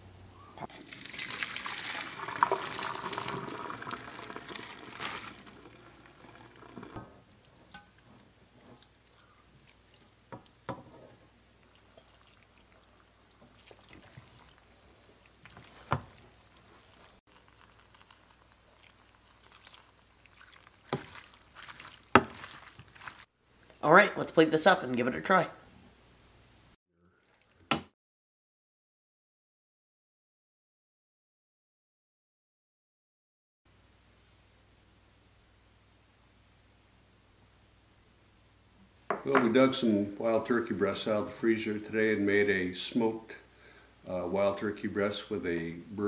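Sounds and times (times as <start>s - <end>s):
water pouring into metal colander: 0.7s - 7.4s, 18.9s - 23.3s
wooden spoon scraping pot: 2.3s - 9.0s, 15.4s - 23.3s.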